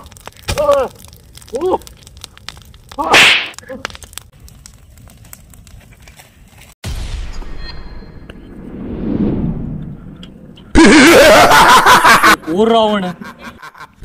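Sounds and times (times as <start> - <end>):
fire crackling with sharp pops: 0.0 - 7.4.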